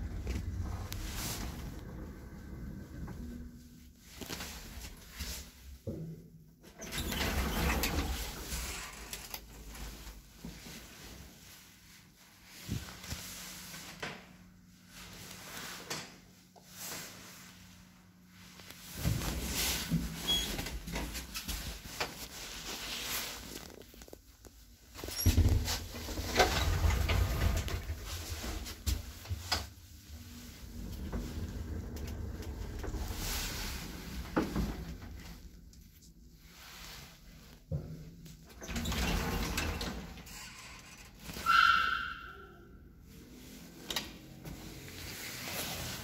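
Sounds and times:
elevator hum: 0:00.0 - 0:03.9, 0:29.9 - 0:35.4.

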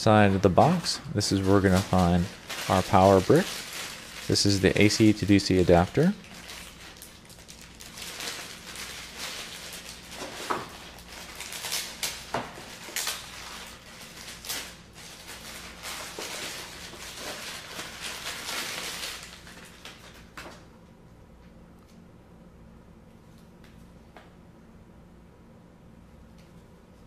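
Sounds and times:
packaging rustling: 0:00.4 - 0:20.6.

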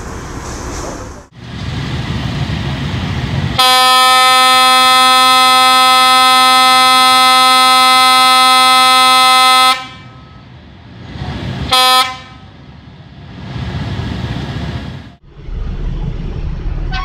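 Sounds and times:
low rumble: 0:00.0 - 0:03.6, 0:12.6 - 0:17.0
locomotive air horn blast: 0:03.5 - 0:10.5, 0:11.7 - 0:12.6.

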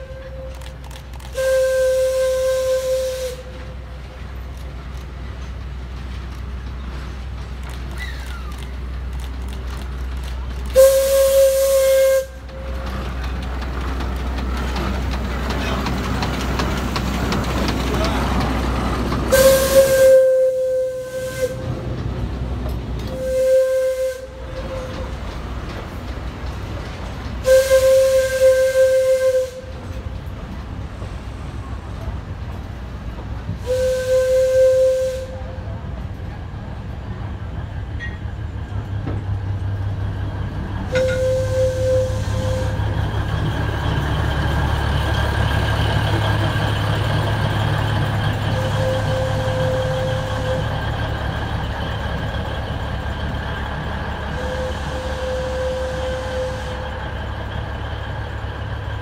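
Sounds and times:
steam whistle blasts: 0:01.3 - 0:03.6, 0:10.7 - 0:12.8, 0:19.3 - 0:21.7, 0:23.1 - 0:25.0, 0:27.4 - 0:29.8, 0:33.6 - 0:35.8, 0:40.9 - 0:43.0, 0:48.5 - 0:50.8, 0:54.3 - 0:57.0.

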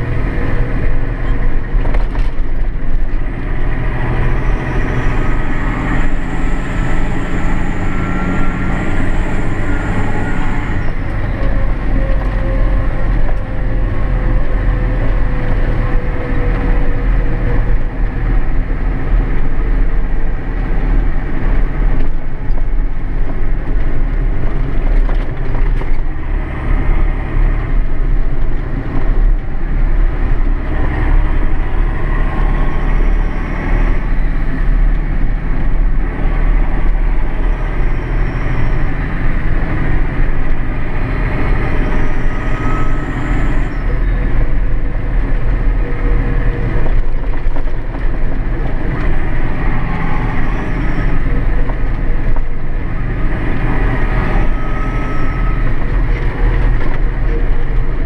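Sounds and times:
tractor diesel engine running: 0:00.0 - 0:58.0
faint whines drifting in pitch: 0:04.2 - 0:20.0, 0:29.0 - 0:58.0.

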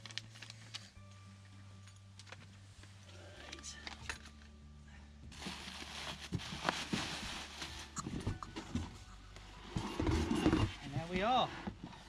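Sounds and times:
plastic packaging crinkling: 0:00.0 - 0:00.9, 0:05.4 - 0:08.5.

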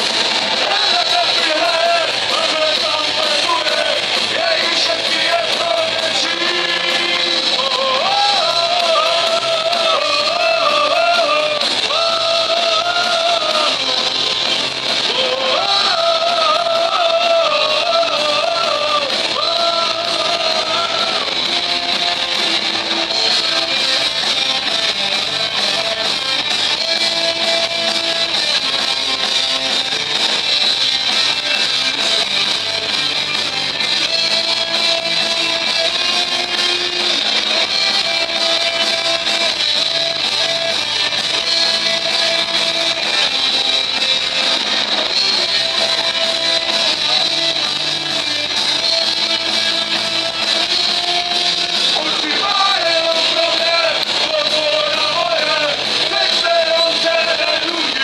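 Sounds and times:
drums: 0:00.0 - 0:58.0
electric guitars: 0:00.0 - 0:58.0
person singing: 0:00.6 - 0:14.3, 0:15.0 - 0:21.9, 0:51.9 - 0:58.0.

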